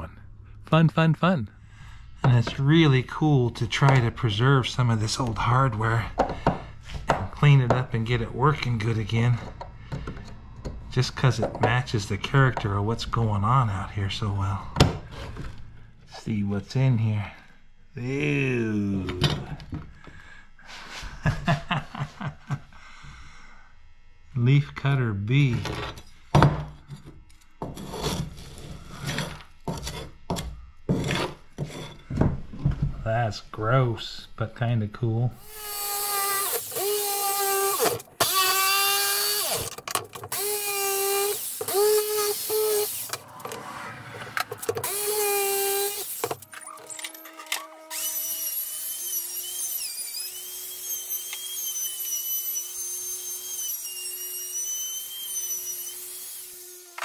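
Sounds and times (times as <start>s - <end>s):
low hum: 0.0s - 29.7s
scraping on wooden door: 27.6s - 32.3s
power tool whining on wood: 35.4s - 43.6s, 44.3s - 57.0s.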